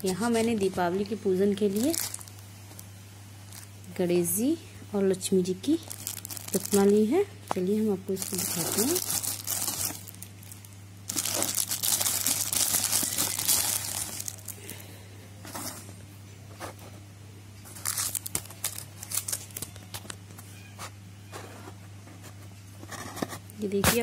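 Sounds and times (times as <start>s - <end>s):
plastic wrapping crinkling: 0.0s - 2.9s, 3.5s - 4.0s, 5.6s - 14.9s, 17.7s - 20.2s.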